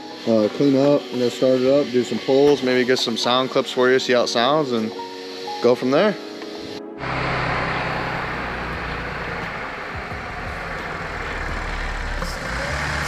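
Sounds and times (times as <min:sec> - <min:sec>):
car engine idling: 0:07.0 - 0:13.0.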